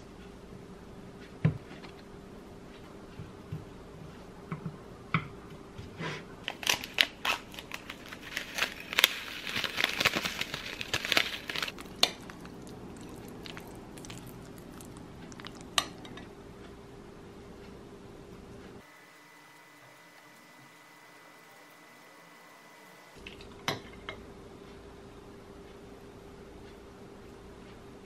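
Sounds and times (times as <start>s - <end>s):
faint steady hum: 0.0s - 28.0s
seasoning packet crinkling: 6.5s - 15.7s.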